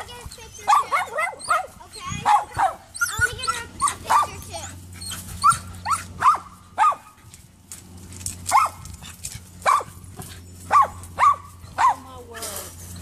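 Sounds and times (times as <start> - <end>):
dog barking: 0.6 - 4.4, 5.4 - 7.2, 8.5 - 8.8, 9.6 - 10.0, 10.7 - 12.1.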